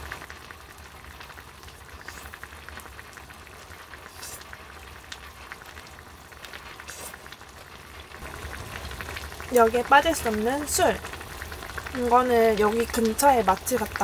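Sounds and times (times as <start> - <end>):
hot pot bubbling: 0.0 - 14.0
noodle slurping: 1.9 - 2.4, 4.0 - 4.8, 6.6 - 7.3.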